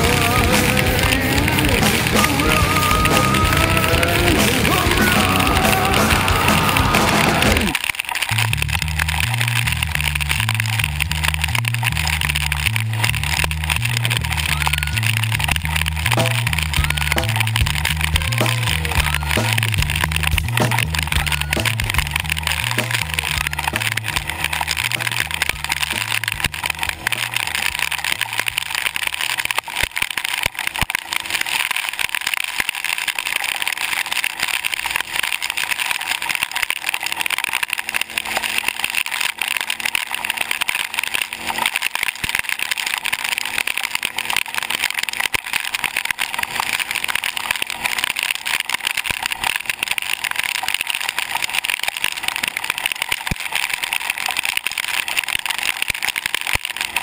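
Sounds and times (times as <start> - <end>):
low pulsing: 0.0 - 29.6
atv engine running: 0.0 - 31.6, 33.0 - 57.0.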